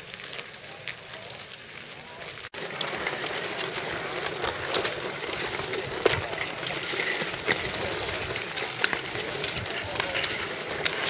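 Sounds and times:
ice skates scraping on ice: 0.0s - 11.0s
pole tips clicking on ice: 2.2s - 11.0s.

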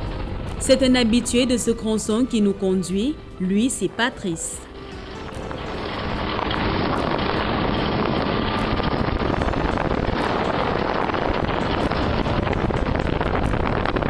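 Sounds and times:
car engine and tyres rumbling: 0.0s - 1.9s, 4.7s - 14.0s.

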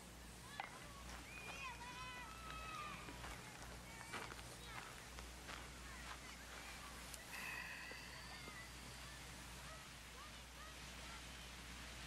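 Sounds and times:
small birds chirping: 0.4s - 12.0s.

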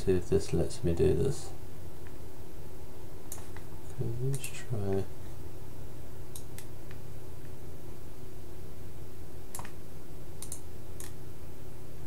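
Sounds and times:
steady low hum: 0.0s - 12.0s
computer mouse clicks: 3.3s - 3.7s, 6.3s - 7.0s, 9.5s - 9.8s, 10.4s - 11.2s.

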